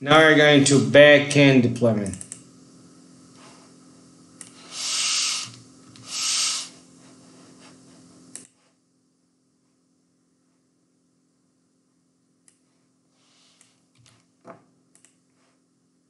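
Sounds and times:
hiss puffs on microphone: 0:04.6 - 0:06.8.

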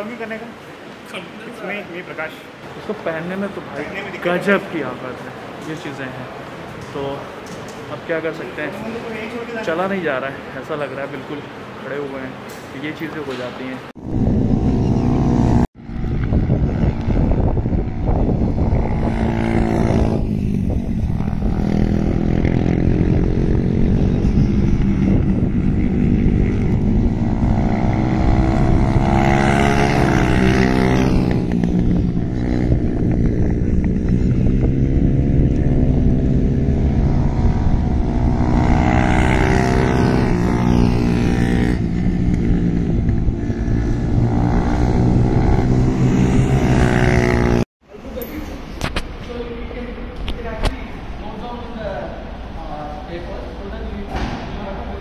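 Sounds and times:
racing motorcycles revving: 0:12.6 - 0:47.7.

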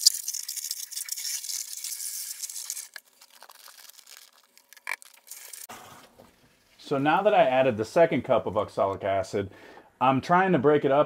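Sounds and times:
hose spray hissing into water: 0:00.0 - 0:03.0.

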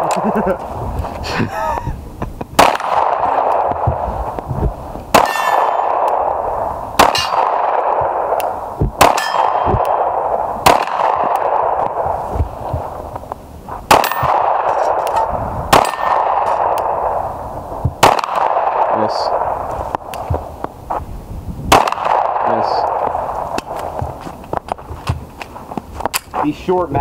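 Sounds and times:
pistol shots: 0:02.6 - 0:04.0, 0:05.1 - 0:12.2, 0:13.9 - 0:17.2, 0:17.8 - 0:20.5, 0:21.7 - 0:24.1
steel target clanging: 0:09.1 - 0:09.8.

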